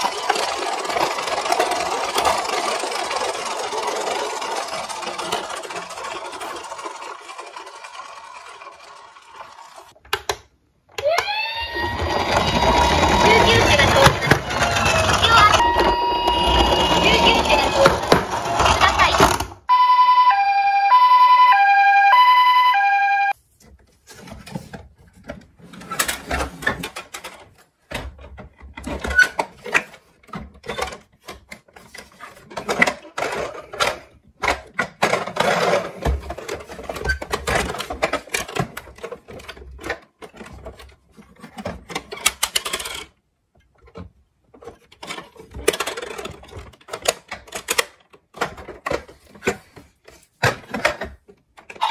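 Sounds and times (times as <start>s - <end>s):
plastic toy vehicles clattering: 0.0s - 19.6s, 23.6s - 51.9s
electronic hi-lo toy siren: 11.2s - 13.7s, 14.5s - 17.6s, 19.7s - 23.4s.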